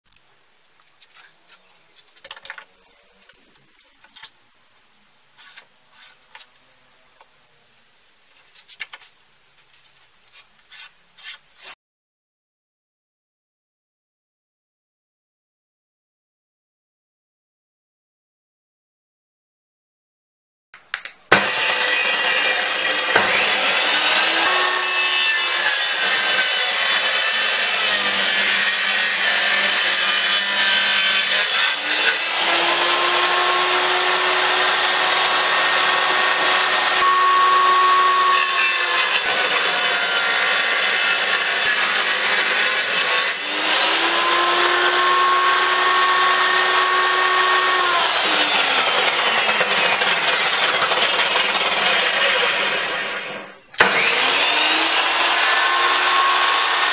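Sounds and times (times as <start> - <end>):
power tool rasping wood: 21.3 - 56.9.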